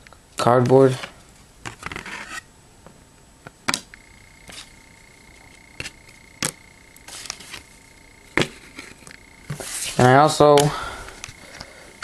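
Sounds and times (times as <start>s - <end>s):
faint high whine: 3.8s - 12.0s.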